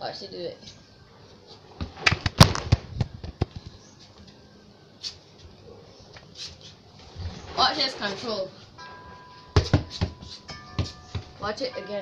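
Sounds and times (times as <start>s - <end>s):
ball bouncing on hard floor: 9.6s - 11.4s.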